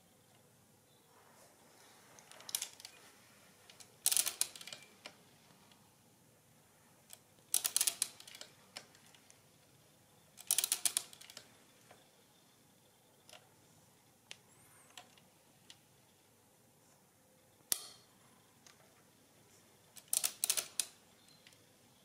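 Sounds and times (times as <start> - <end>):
mechanical calculator clattering: 3.7 - 5.1, 7.1 - 9.3, 10.4 - 11.6, 20.0 - 20.9.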